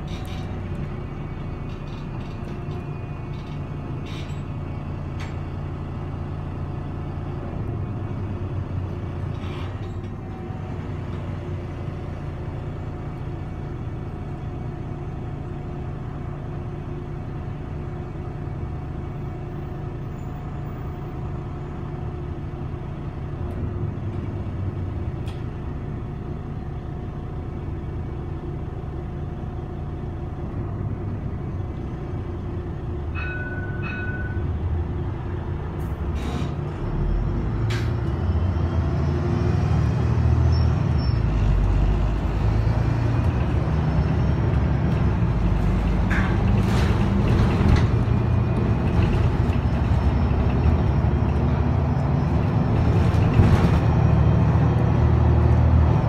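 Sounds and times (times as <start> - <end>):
bus engine drone with whine: 0.0 - 56.0.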